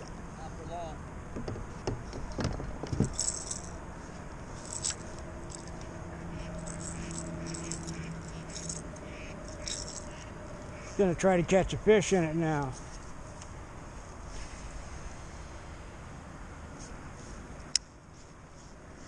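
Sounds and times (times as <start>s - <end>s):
paddle knocking plastic hull: 1.3s - 3.1s.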